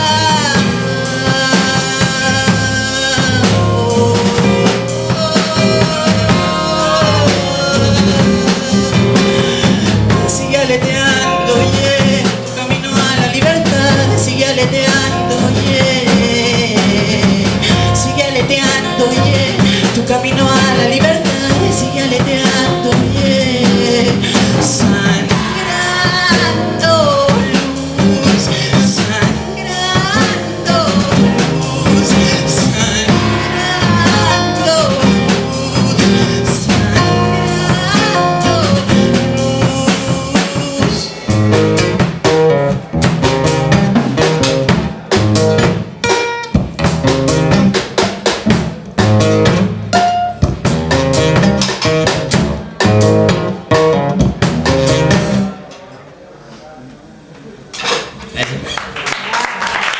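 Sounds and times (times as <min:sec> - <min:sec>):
man singing: 0:00.0 - 0:42.0
drum kit: 0:00.0 - 0:55.8.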